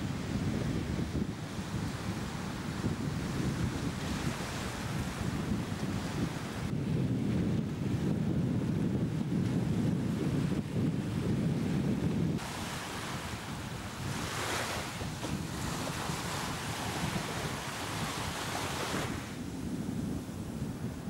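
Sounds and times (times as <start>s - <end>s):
wind buffeting microphone: 0.0s - 21.0s
foaming surf hissing: 12.4s - 19.2s
waves breaking on rocks: 12.4s - 19.3s.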